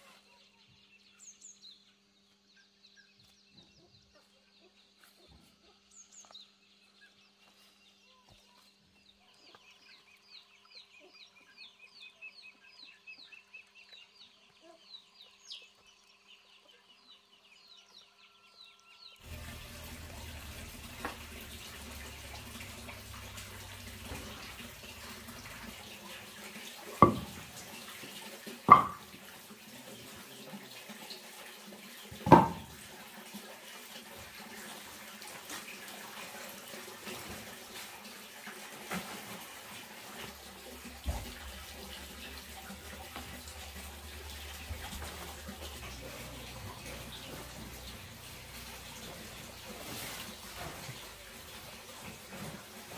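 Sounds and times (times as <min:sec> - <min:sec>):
birds chirping: 0:00.0 - 0:30.7
water running: 0:19.2 - 0:52.9
loud knocks: 0:27.0 - 0:27.4, 0:28.7 - 0:29.1, 0:32.2 - 0:32.8.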